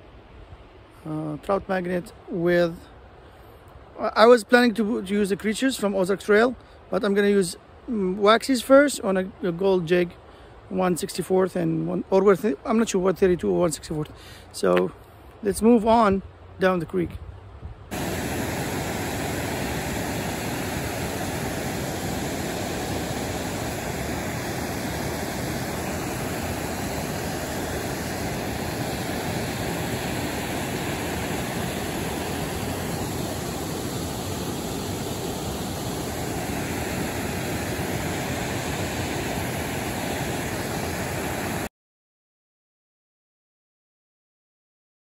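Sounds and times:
water rushing over waterfall: 17.9 - 41.7.

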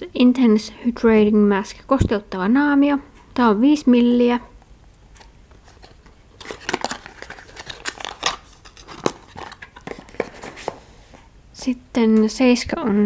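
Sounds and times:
small cardboard boxes clicking and tapping: 6.4 - 10.8.

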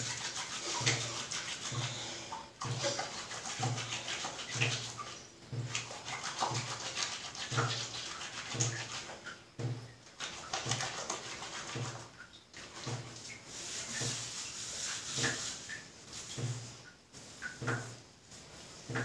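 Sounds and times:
hands squelching lather: 0.0 - 5.1, 5.7 - 9.2.

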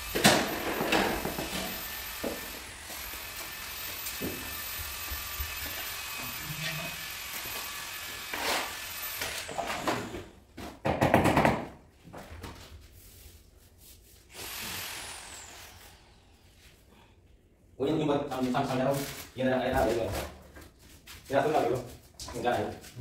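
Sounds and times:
tools and tiles scraping and knocking: 0.2 - 2.6
trowel scraping mortar: 8.3 - 8.8.

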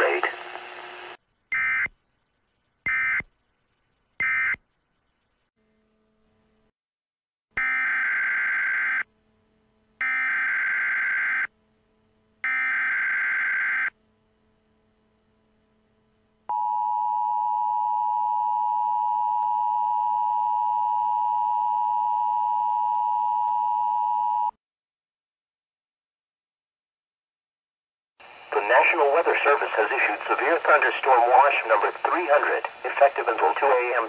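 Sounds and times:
steady warning alarm tone: 12.4 - 13.9.

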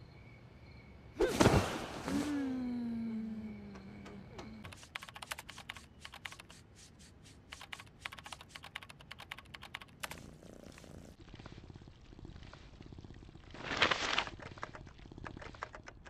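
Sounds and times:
typing on laptop keyboard: 4.6 - 6.6, 7.5 - 10.2, 14.3 - 16.0.

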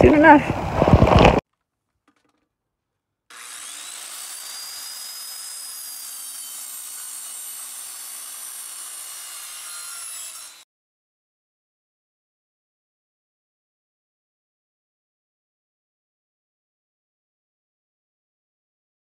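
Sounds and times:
circular saw cutting wood: 3.3 - 10.7.

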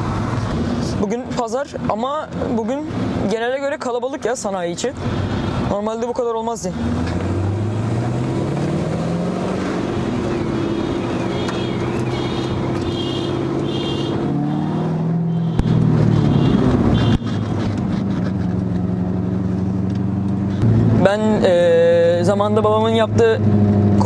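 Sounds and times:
car engine running: 6.7 - 24.0.

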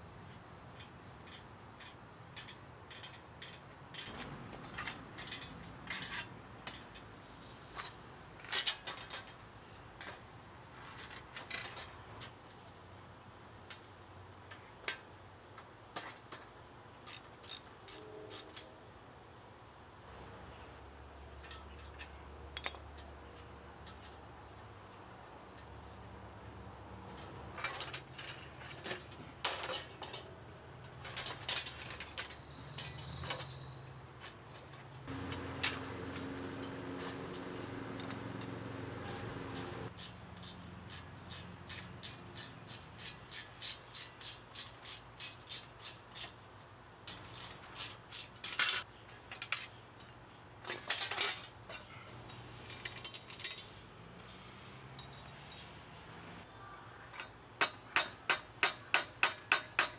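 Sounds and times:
metal tools clanking on bicycle: 0.8 - 7.1, 7.7 - 9.4, 21.3 - 24.2, 27.2 - 33.6, 34.2 - 46.3, 47.0 - 53.7, 54.9 - 55.7.

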